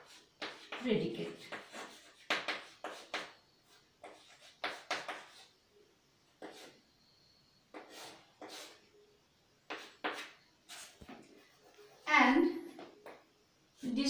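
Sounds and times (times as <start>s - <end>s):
chalk scraping on a chalkboard: 0.0s - 5.6s, 6.4s - 6.8s, 7.7s - 8.8s, 9.7s - 12.1s.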